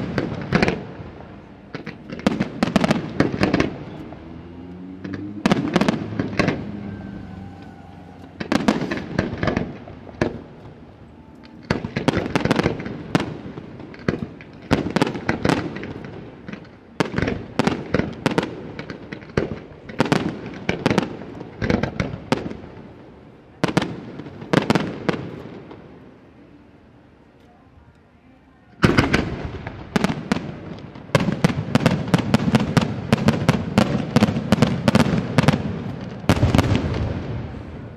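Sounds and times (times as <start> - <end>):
fireworks bursting: 0.0 - 26.3, 28.8 - 37.9.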